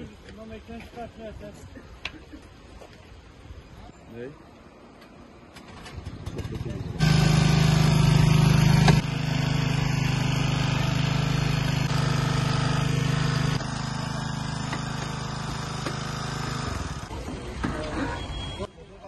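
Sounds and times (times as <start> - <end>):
small petrol engine running: 5.7 - 17.2.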